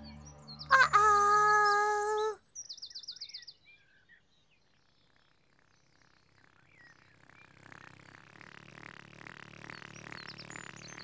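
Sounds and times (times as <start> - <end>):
loud held note: 0.0 - 1.5
bird chirps: 0.0 - 4.2
birdsong trill: 0.0 - 4.6.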